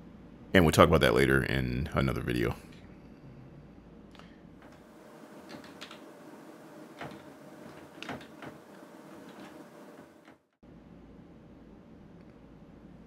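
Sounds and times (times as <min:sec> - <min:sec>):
steady low hum: 0:00.0 - 0:13.0
keyboard keys clicking: 0:05.4 - 0:06.1, 0:06.9 - 0:10.1.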